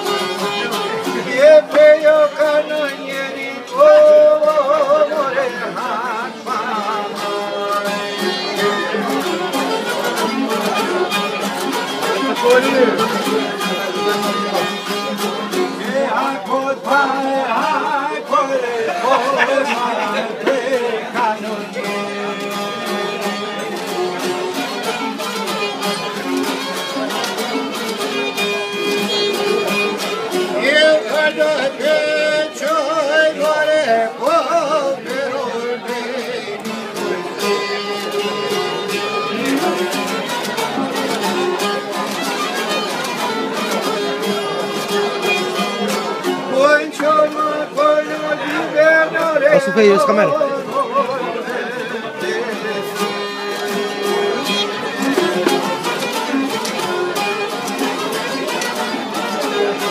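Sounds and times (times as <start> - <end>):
strummed plucked lutes: 0.0 - 59.9
man singing: 0.1 - 11.3, 12.1 - 23.5, 30.3 - 40.4, 46.2 - 55.6.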